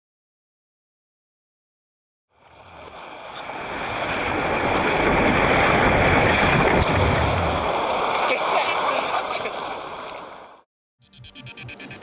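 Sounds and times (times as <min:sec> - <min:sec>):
rushing water: 0:02.4 - 0:10.6.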